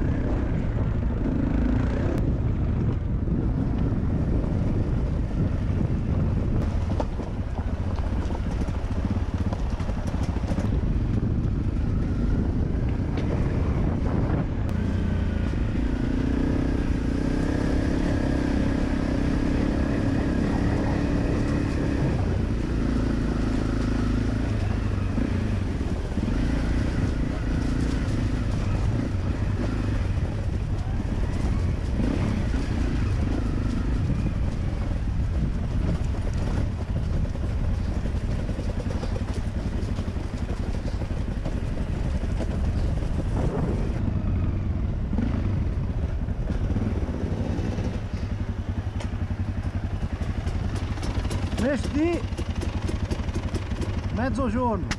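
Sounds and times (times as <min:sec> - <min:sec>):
wind on microphone: 0:00.0 - 0:52.4
motorcycle engine running: 0:00.0 - 0:54.9
motorcycle knocking on rough ground: 0:06.6 - 0:11.6, 0:30.2 - 0:44.0, 0:47.6 - 0:54.9.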